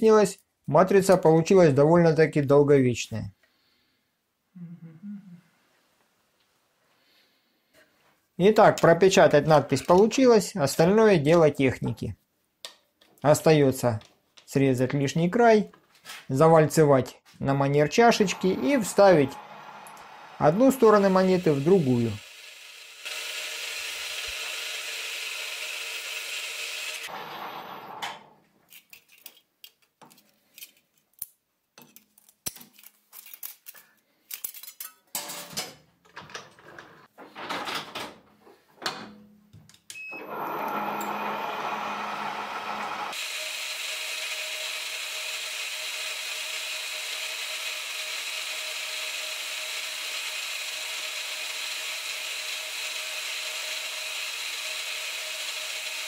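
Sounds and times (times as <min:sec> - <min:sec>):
metal lathe running: 0:17.9 - 0:28.0, 0:40.2 - 0:56.0.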